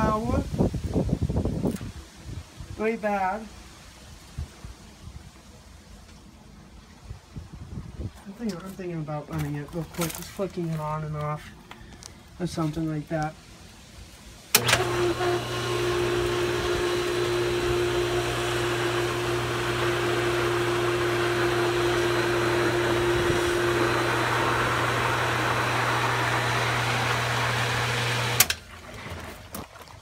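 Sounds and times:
pump motor humming: 0:14.5 - 0:29.9.

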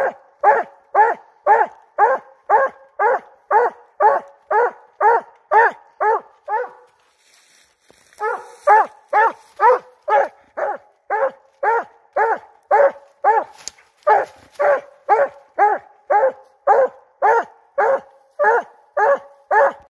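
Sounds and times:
hound barking: 0:00.0 - 0:07.0, 0:08.0 - 0:19.9.

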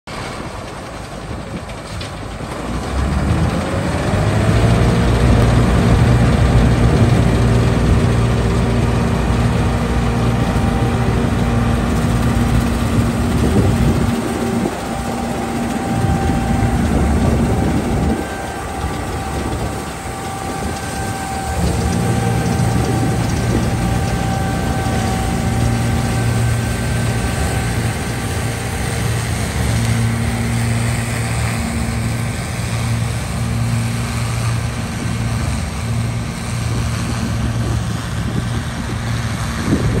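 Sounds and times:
combine harvester engine rumble: 0:00.1 - 0:40.0
whining threshing machinery: 0:00.1 - 0:40.0.

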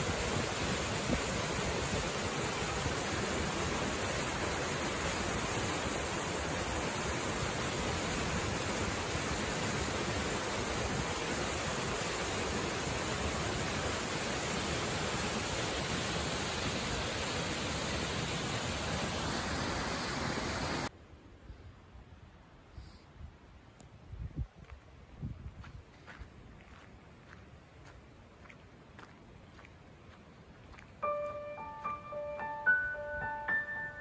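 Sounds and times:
waterfall rushing: 0:00.0 - 0:20.9.

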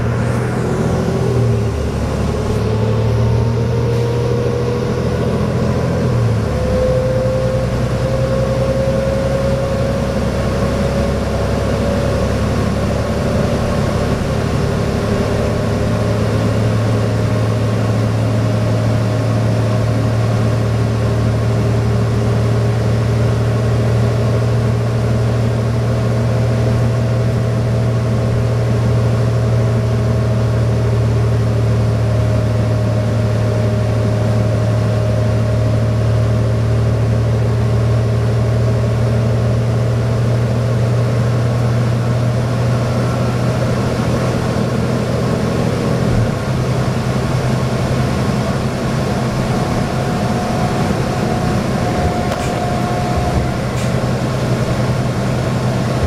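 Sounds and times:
tyre and road noise: 0:00.0 - 0:06.7, 0:42.8 - 0:56.0
bus diesel engine droning: 0:00.0 - 0:56.0.

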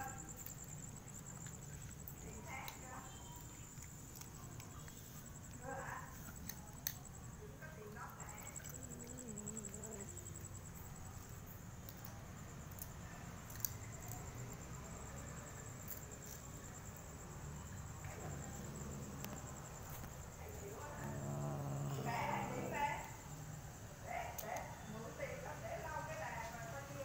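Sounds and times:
crickets trilling: 0:00.0 - 0:27.0
faint voice: 0:20.4 - 0:23.2.

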